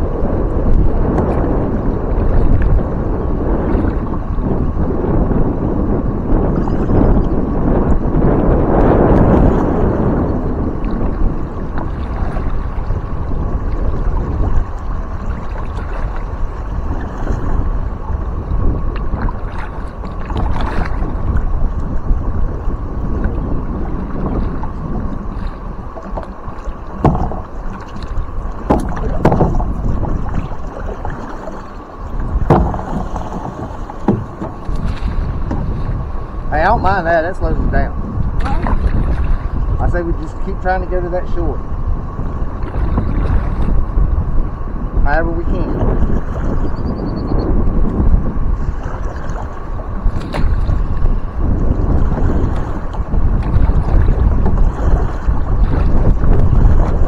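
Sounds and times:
wind on microphone: 0.0s - 57.0s
knocks and splashes: 0.7s - 2.9s, 8.4s - 17.9s, 18.5s - 22.0s, 23.2s - 36.2s, 38.3s - 39.7s, 42.5s - 44.0s, 47.8s - 57.0s.

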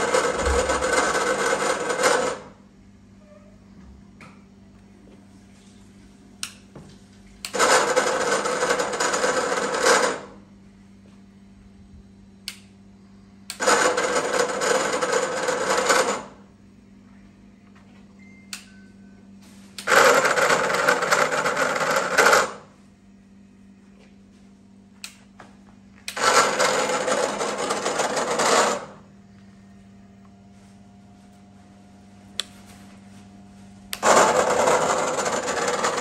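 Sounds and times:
cutting machine motor running: 0.0s - 2.6s, 7.4s - 10.4s, 13.5s - 16.4s, 19.8s - 22.7s, 26.0s - 29.1s, 33.9s - 36.0s
electrical hum: 0.0s - 36.0s.

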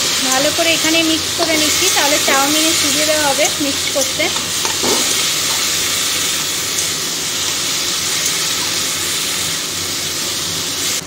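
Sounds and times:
vegetables sizzling in hot pan: 0.0s - 11.0s
spatula stirring: 0.1s - 8.9s.

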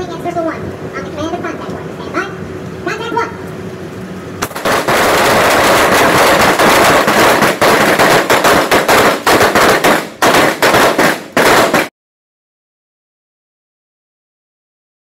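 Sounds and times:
rapid rifle gunfire: 4.4s - 11.9s.

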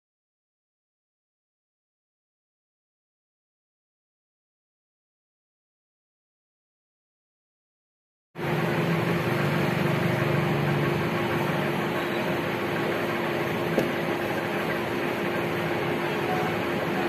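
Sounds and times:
steady machine hum: 8.4s - 17.0s.

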